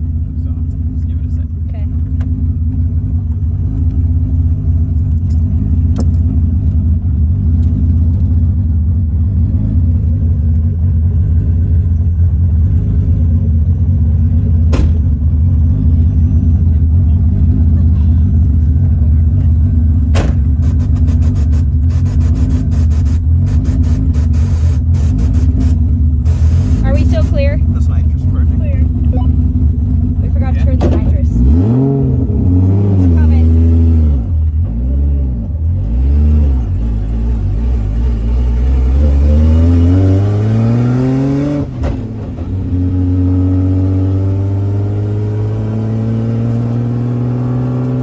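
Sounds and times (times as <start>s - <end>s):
engine and road noise: 0.0s - 48.0s.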